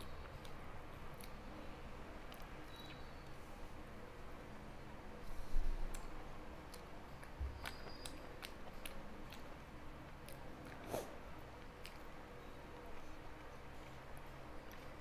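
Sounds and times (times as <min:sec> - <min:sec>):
mouth clicks and smacks chewing: 0:00.0 - 0:01.5, 0:02.2 - 0:03.4, 0:05.8 - 0:15.0.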